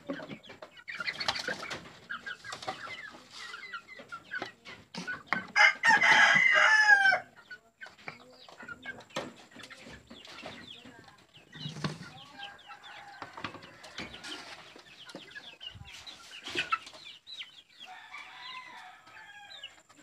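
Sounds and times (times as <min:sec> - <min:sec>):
knocks and rattles on a coop: 0:00.0 - 0:06.6, 0:07.8 - 0:17.0
chickens clucking: 0:00.0 - 0:20.0
rooster crowing: 0:05.6 - 0:07.3, 0:17.9 - 0:19.8.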